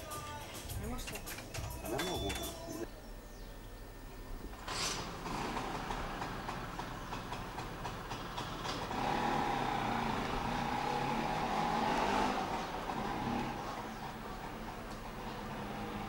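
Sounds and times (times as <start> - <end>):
vehicle engine passing: 4.6 - 16.0.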